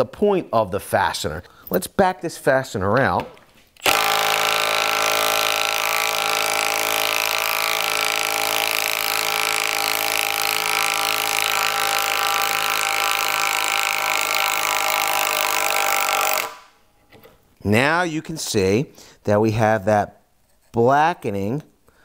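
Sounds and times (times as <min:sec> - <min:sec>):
impact driver hammering: 0:03.8 - 0:16.7.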